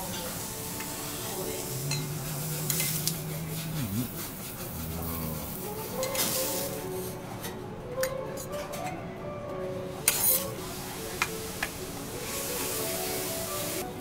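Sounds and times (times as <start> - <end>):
faint griddle sizzle: 0.0 - 7.5, 9.9 - 14.0.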